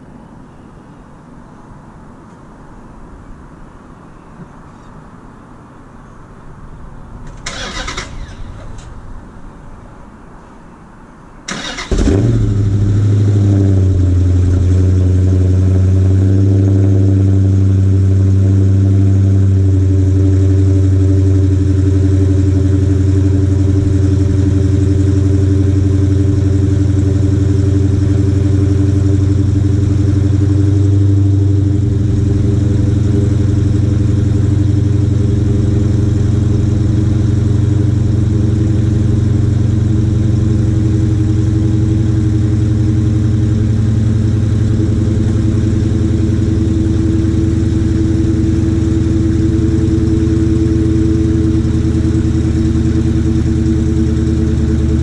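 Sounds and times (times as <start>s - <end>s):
car engine idling: 11.5s - 55.0s.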